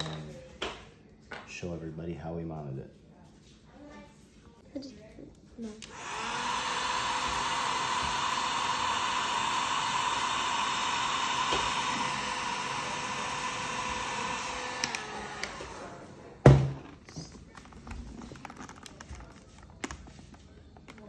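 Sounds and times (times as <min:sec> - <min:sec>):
heat gun blowing: 0:05.8 - 0:16.0.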